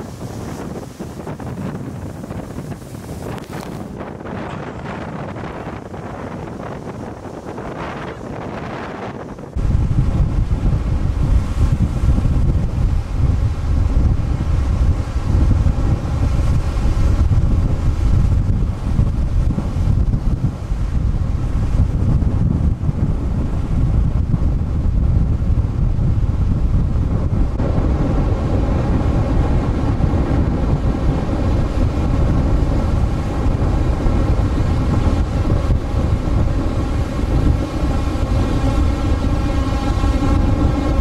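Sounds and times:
storm waves breaking over rocks: 0.0 - 24.3
wind buffeting microphone: 0.0 - 41.0.

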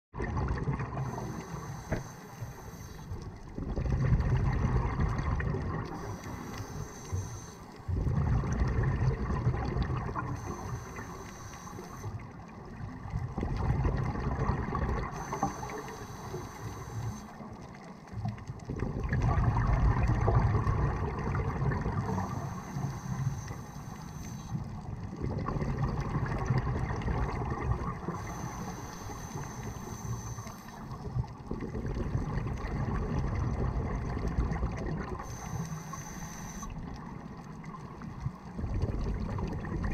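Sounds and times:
exhaled bubbles burbling underwater: 0.2 - 2.0, 3.1 - 39.9
regulator hissing inhale: 1.0 - 3.3, 5.9 - 7.9, 10.3 - 12.4, 15.0 - 17.5, 22.0 - 24.7, 28.1 - 31.0, 35.2 - 36.8.

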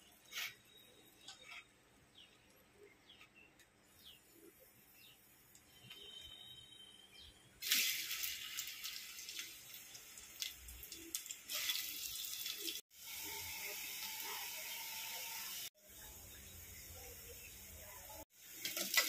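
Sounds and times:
onions sizzling in hot oil: 7.6 - 19.0.

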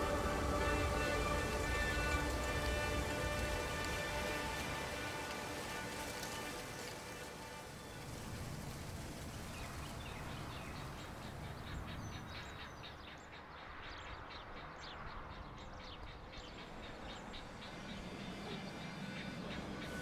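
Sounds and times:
low outdoor rumble: 0.0 - 12.9
birds chirping: 0.0 - 20.0.

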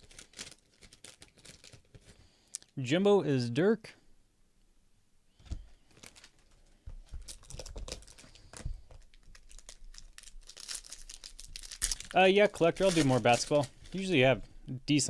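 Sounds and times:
foil card pack crinkling: 0.0 - 2.2, 5.8 - 14.3.

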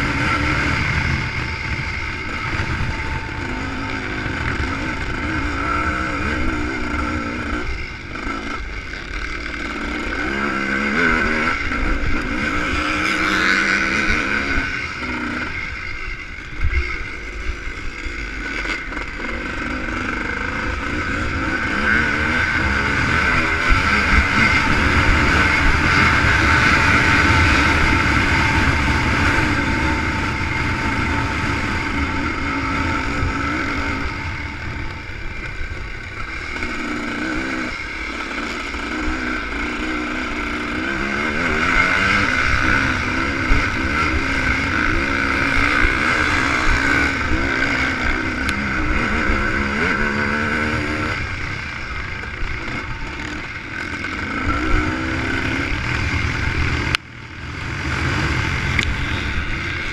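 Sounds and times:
low buffeting rumble: 0.0 - 5.6, 22.5 - 36.8
two-stroke motorcycle engine revving: 0.0 - 59.9.

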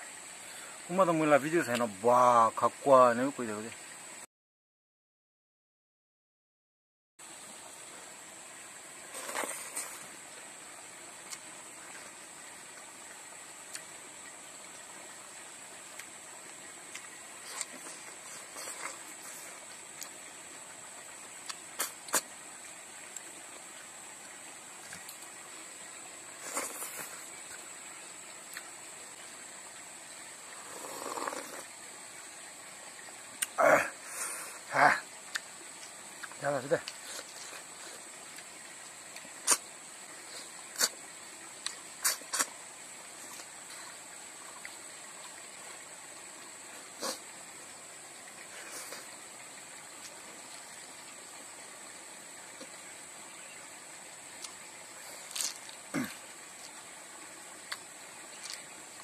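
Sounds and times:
steady hiss: 0.0 - 4.3, 7.2 - 59.0
eating mouth sounds: 21.5 - 22.3, 30.7 - 31.7, 39.2 - 39.7, 40.3 - 41.0, 41.6 - 42.6, 46.8 - 47.3.

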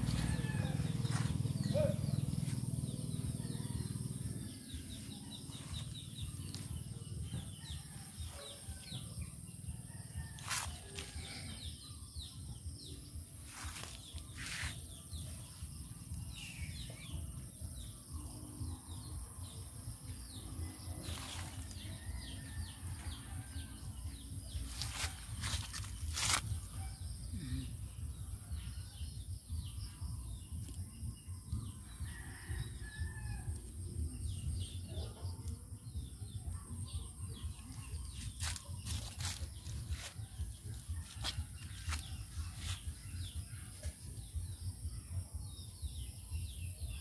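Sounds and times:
low rumble: 0.0 - 7.6
small birds chirping: 24.2 - 32.5.

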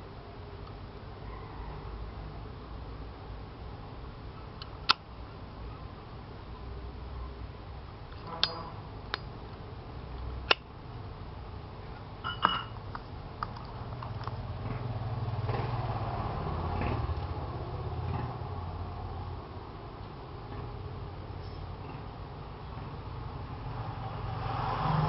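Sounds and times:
low steady hum: 0.0 - 24.1
metallic lighter clicks: 8.4 - 9.3.

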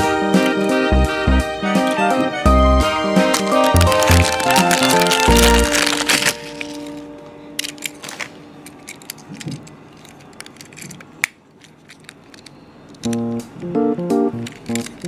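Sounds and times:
background music: 0.0 - 8.0, 13.1 - 15.0
plastic bag crinkling: 3.2 - 13.1, 14.5 - 15.0
toy truck clicks: 7.6 - 13.3, 14.4 - 15.0.

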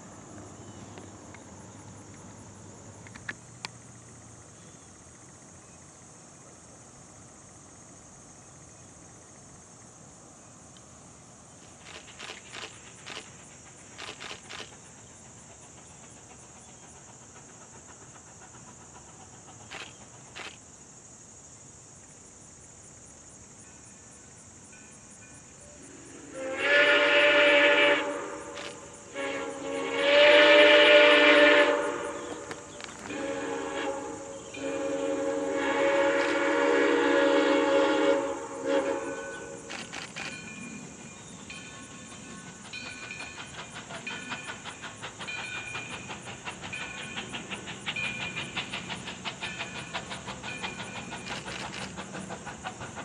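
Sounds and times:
high insect drone: 0.0 - 53.0
locomotive horn blasts: 26.3 - 39.6.

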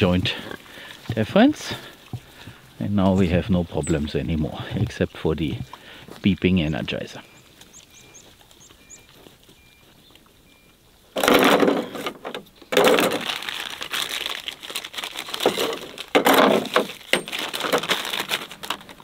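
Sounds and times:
plastic bag crinkling: 11.2 - 19.0.

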